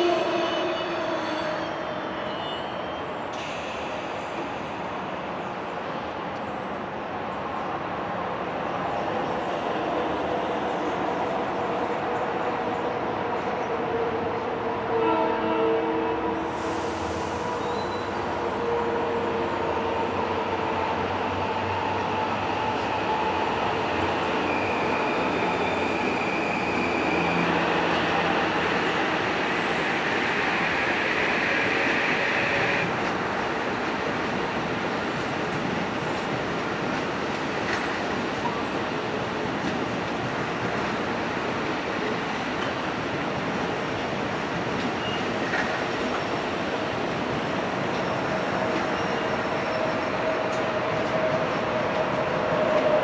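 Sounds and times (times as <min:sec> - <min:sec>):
train wheels rumbling on rail: 0:00.0 - 0:53.0
train idling rumble and hiss: 0:03.0 - 0:13.7, 0:16.2 - 0:20.0.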